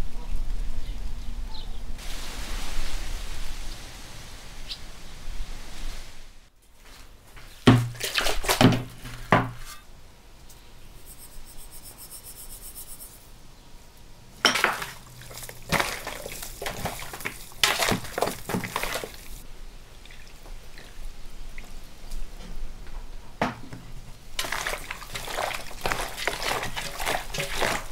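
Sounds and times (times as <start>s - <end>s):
raw chicken wings handled in basin: 6.9s - 9.8s, 14.6s - 19.4s, 24.4s - 27.9s
metal basin clanking on wood: 7.7s - 9.8s, 14.4s - 19.4s, 24.4s - 27.9s.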